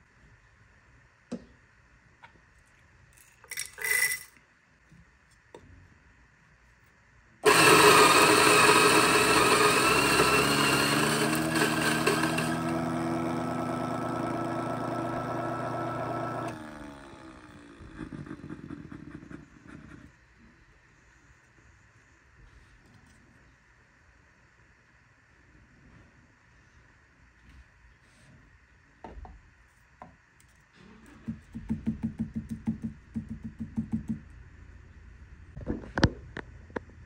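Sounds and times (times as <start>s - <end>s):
coffee grinder grinding beans: 3.4s - 4.3s, 7.4s - 19.4s.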